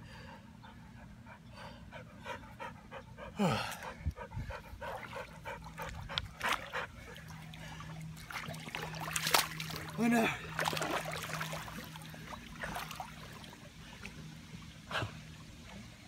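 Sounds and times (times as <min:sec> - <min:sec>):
dog panting: 0:00.7 - 0:07.2.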